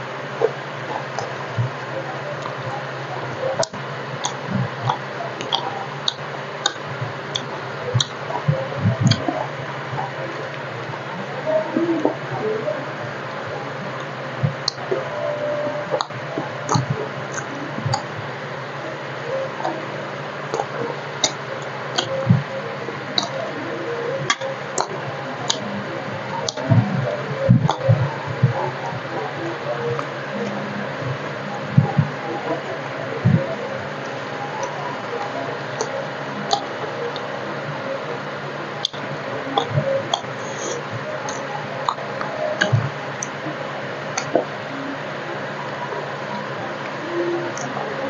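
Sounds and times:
steady low hum: 0.0 - 48.0
sharp mouth clicks: 3.5 - 9.3, 15.9 - 18.2, 38.8 - 43.4
close-miked chewing: 13.1 - 23.5.

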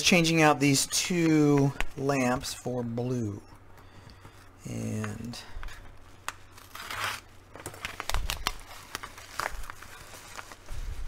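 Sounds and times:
paper envelope crinkling: 5.6 - 11.0.

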